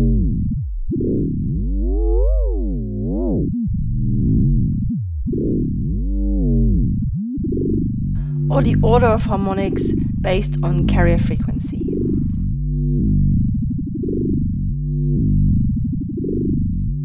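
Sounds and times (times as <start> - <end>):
steady low bass: 0.0 - 17.0
synthesizer fm tone: 0.9 - 12.3.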